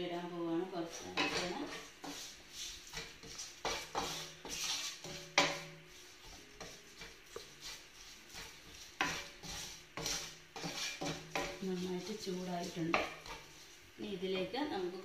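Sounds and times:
wooden spatula scraping a pan: 0.6s - 15.0s.

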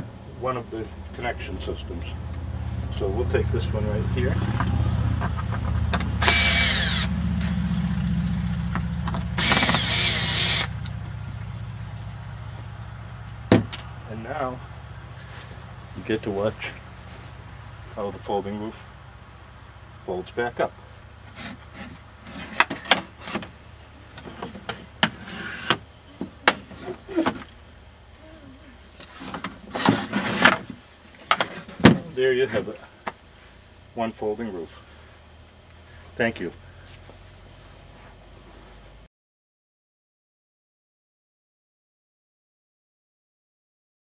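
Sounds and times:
cordless drill motor: 6.0s - 7.6s, 9.3s - 10.8s
wood scraping: 21.2s - 23.6s, 24.2s - 27.5s, 29.0s - 32.8s.

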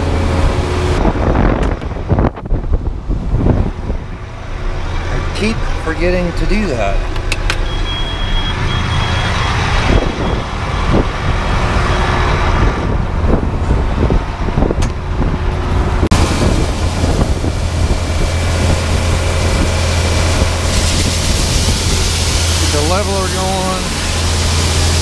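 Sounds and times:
tractor engine running: 0.0s - 25.0s
corn pouring with rushing hiss: 18.3s - 25.0s.

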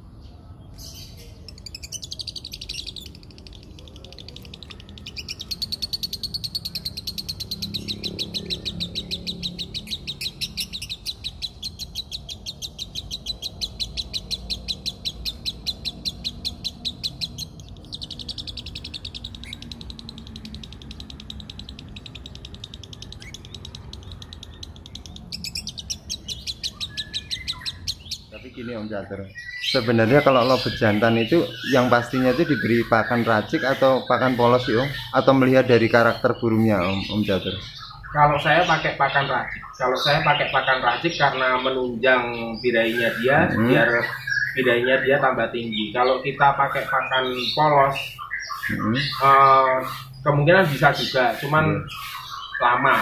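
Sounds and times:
lovebird rattling chatter: 1.5s - 28.3s.

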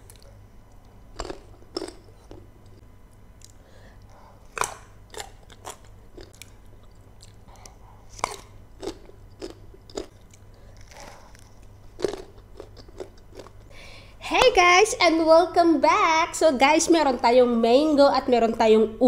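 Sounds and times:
crunchy chewing: 0.0s - 2.8s, 3.4s - 13.7s.

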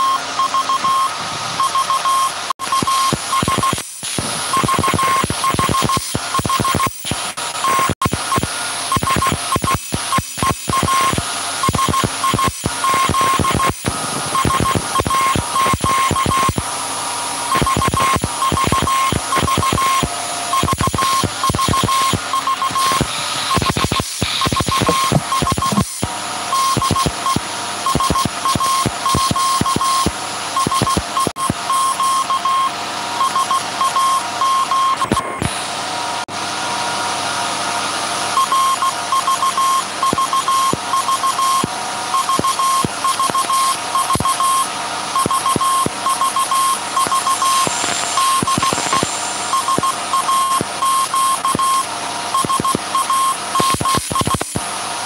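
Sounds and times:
morse code beeping tone: 0.0s - 3.9s, 4.5s - 7.0s, 7.6s - 16.6s, 17.5s - 35.5s, 38.4s - 54.5s
alternator running: 7.4s - 30.7s, 31.7s - 53.8s
sharp clicks: 17.6s - 26.1s, 47.0s - 50.7s.

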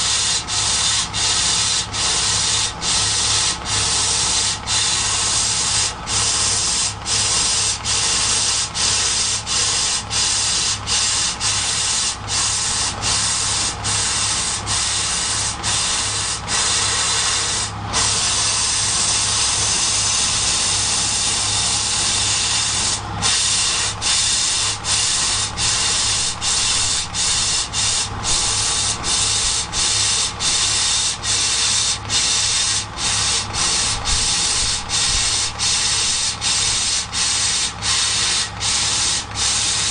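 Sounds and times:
laser cutter hiss: 0.0s - 39.9s
low machine hum: 0.0s - 39.9s.

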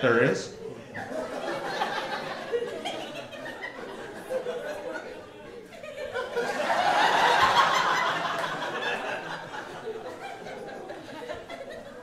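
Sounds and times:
audience laughing: 0.8s - 12.0s.

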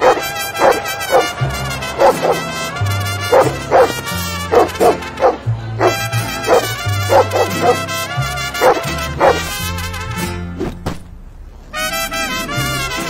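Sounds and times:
large dog barking: 0.0s - 9.8s.

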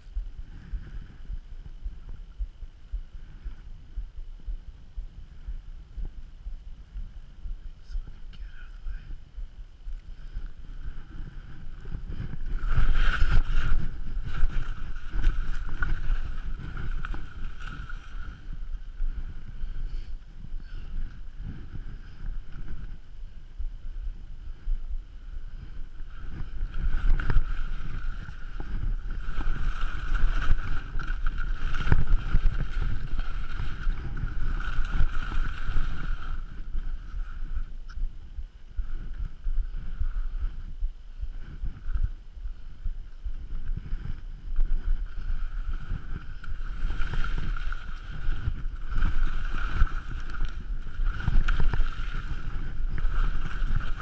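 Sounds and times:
wind buffeting microphone: 0.0s - 54.0s
skis scraping over snow: 10.2s - 18.6s, 26.1s - 37.4s, 43.8s - 54.0s.

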